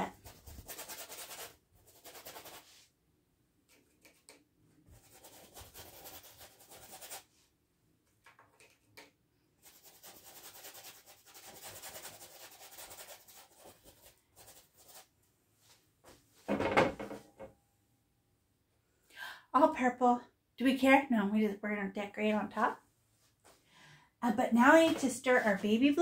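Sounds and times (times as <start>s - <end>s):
paintbrush scrubbing on canvas: 0.0s - 2.9s, 4.9s - 7.4s, 9.6s - 15.1s.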